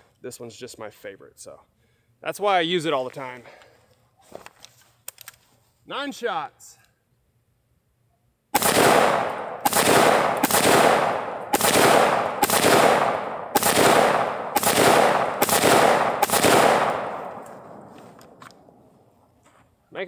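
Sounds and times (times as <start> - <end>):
rifle shots echoing: 8.6 - 18.8.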